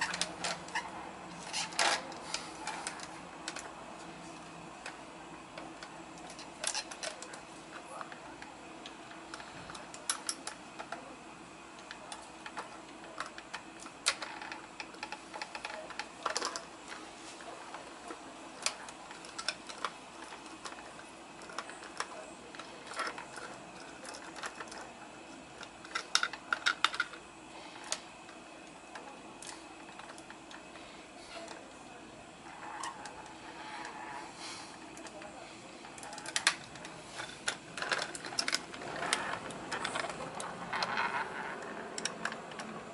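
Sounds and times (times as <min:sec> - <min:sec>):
plastic toy truck clicks and rattles: 0:08.8 - 0:11.0, 0:11.8 - 0:17.0, 0:17.6 - 0:27.2, 0:35.9 - 0:42.9.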